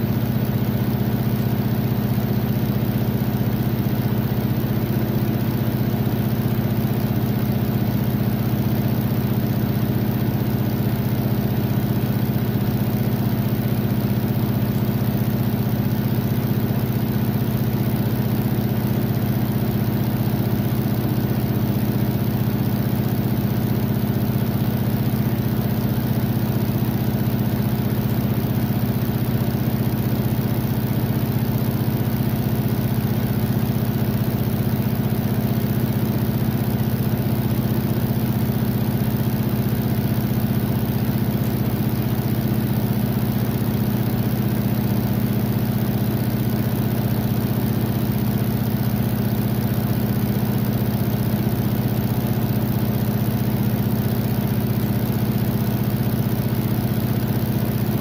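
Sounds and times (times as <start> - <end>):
washing machine running: 0.0 - 58.0.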